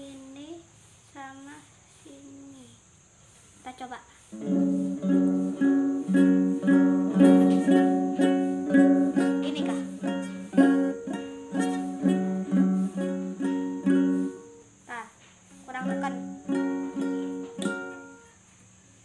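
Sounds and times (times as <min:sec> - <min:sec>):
nylon string guitar strumming: 0:04.4 - 0:14.8, 0:15.6 - 0:18.4.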